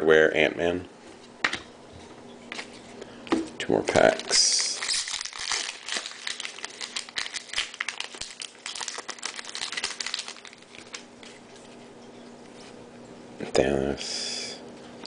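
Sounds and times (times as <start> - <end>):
plastic wrapper crinkling: 3.9 - 11.8.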